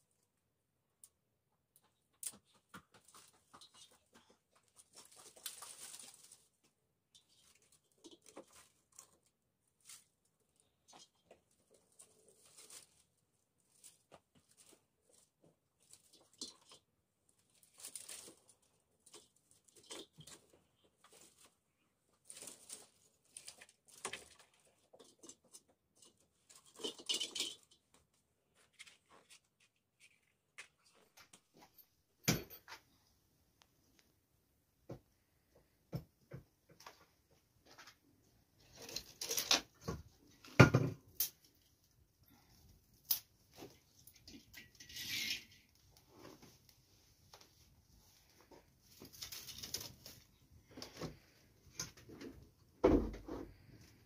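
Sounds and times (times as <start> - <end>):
twigs rustling and snapping: 4.6 - 16.8, 17.4 - 21.6, 22.2 - 27.8, 38.6 - 41.7, 42.9 - 44.7, 48.9 - 52.1.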